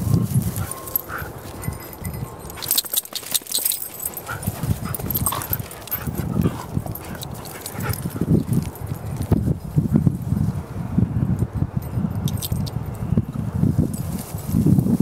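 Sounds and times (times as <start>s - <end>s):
footsteps in long grass: 0.0s - 10.4s
dogs whining: 0.1s - 8.5s.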